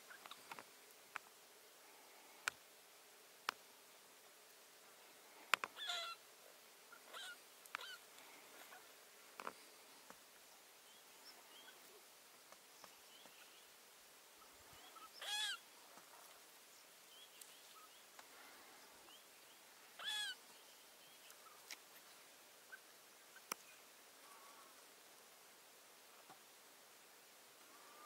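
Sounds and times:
rabbit distress squeals: 5.8 - 6.2, 7.0 - 8.0, 14.9 - 15.6, 20.0 - 20.4
faint bird chirps: 6.9 - 8.9, 10.4 - 12.1, 12.7 - 15.7, 16.6 - 24.8.

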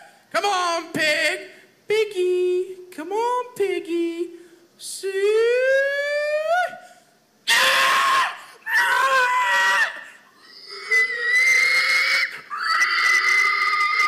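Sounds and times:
man imitating pig squeals: 7.5 - 14.0.

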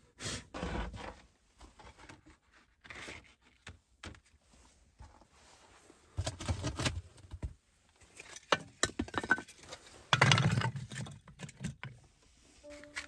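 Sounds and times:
wooden sticks clattering together: 8.1 - 12.0.

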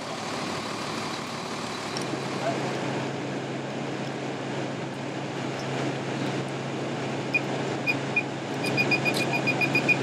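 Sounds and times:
engine idling: 0.0 - 10.0
high-pitched electronic beeps: 7.3 - 10.0.

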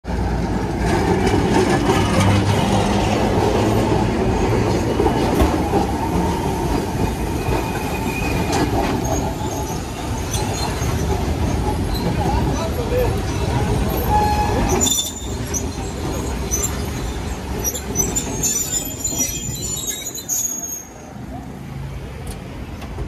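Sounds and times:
sharp clicks of tram wheels: 0.1 - 20.1
steel wheels rumbling on rails: 0.1 - 21.0
thin wheel squeals: 14.0 - 21.1.

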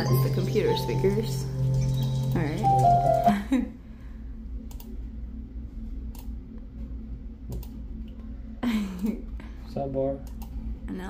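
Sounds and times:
low steady hum: 0.0 - 11.0
computer mouse clicks: 4.7 - 4.9, 10.2 - 10.6.

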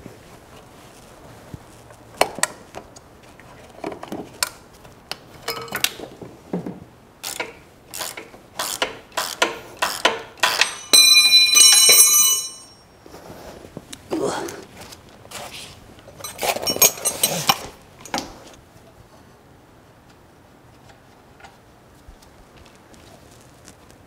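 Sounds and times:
metal tools clinking: 5.4 - 6.1, 9.8 - 12.9, 16.1 - 18.2
bell-like metallic ringing: 10.6 - 13.0.

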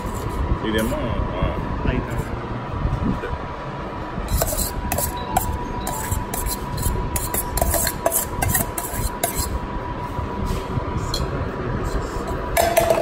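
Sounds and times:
steel spoon scraping bowl: 0.0 - 0.9, 4.3 - 9.6.

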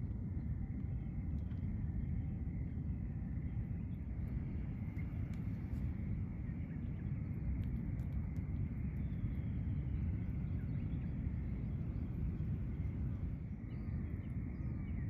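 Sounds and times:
faint high hum: 0.0 - 15.0
steady low rumble: 0.0 - 15.0
soft ticks: 7.6 - 8.5.

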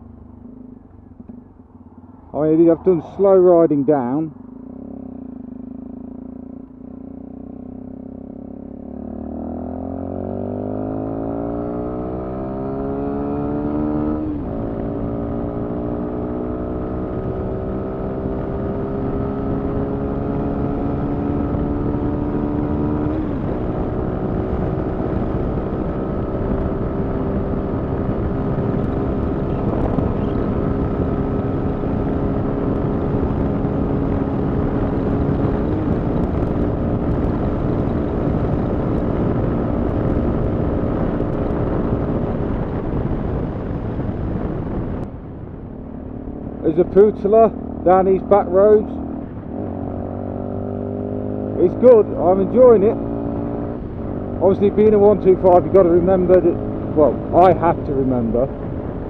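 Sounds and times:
motorcycle engine accelerating: 0.0 - 59.0
wind rush: 21.3 - 46.8.

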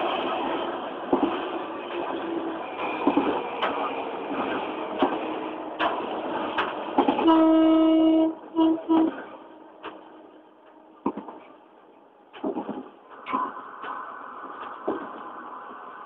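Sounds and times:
locomotive running noise: 0.0 - 16.0
locomotive air horn blasts: 7.2 - 9.2.

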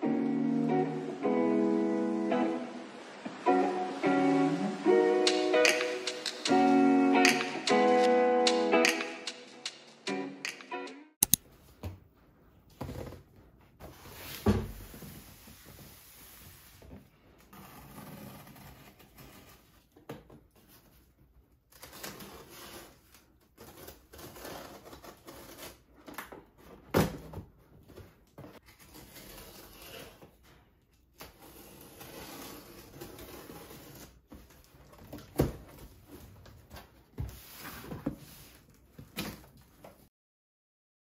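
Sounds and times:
cardboard rustling and scraping: 12.7 - 40.0.

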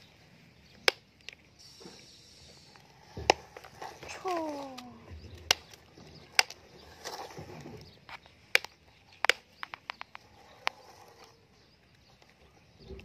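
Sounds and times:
plastic toy clicks and knocks: 8.1 - 10.8.

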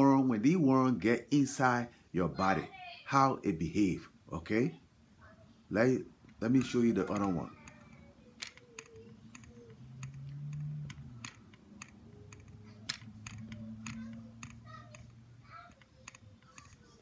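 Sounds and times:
computer keyboard and mouse clicks: 6.2 - 17.0.

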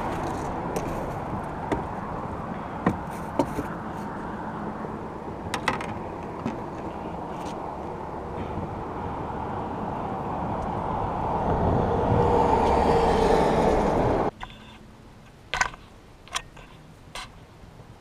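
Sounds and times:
vehicle passing on bridge: 0.0 - 14.3.

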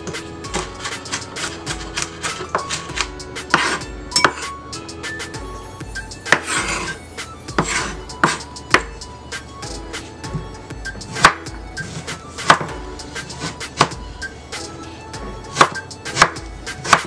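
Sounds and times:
knife chopping on wooden board: 0.0 - 4.5, 6.2 - 9.0, 11.0 - 12.8, 13.4 - 14.0, 15.5 - 17.0
background music: 0.0 - 17.0.

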